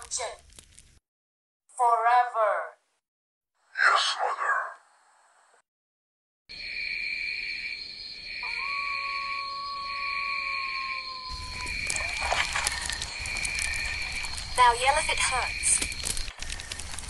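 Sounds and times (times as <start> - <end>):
crackling campfire: 0.0 - 1.0, 11.0 - 17.0
crickets chirring: 6.5 - 17.0
wolf howl: 8.4 - 13.8.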